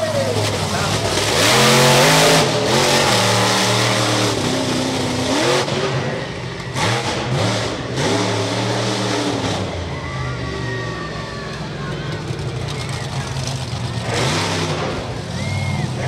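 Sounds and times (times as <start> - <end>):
monster truck engine revving: 0.0 - 16.0.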